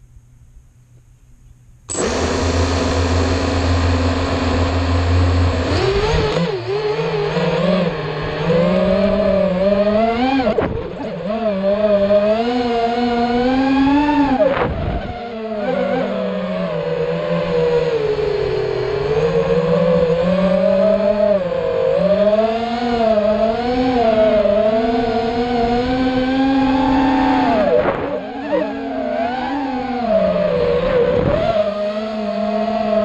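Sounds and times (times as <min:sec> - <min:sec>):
drone motors whining: 0:01.9 - 0:33.0.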